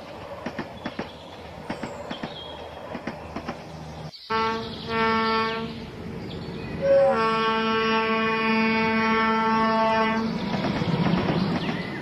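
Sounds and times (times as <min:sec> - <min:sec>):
model train clattering on track: 0:00.4 - 0:03.7, 0:10.5 - 0:12.0.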